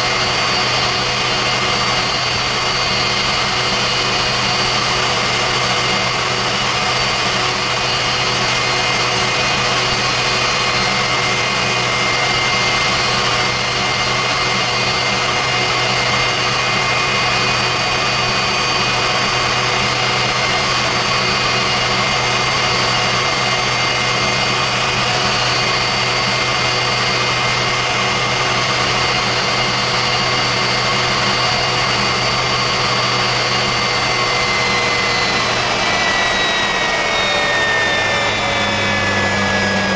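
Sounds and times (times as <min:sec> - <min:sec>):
turbojet engine rushing and whining: 0:00.0 - 0:39.9.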